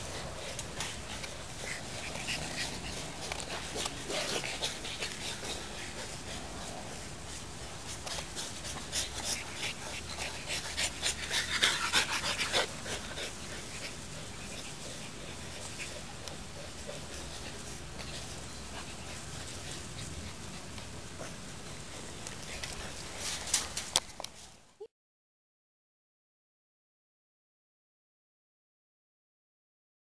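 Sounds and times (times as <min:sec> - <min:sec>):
puppy panting: 0:00.0 - 0:23.7.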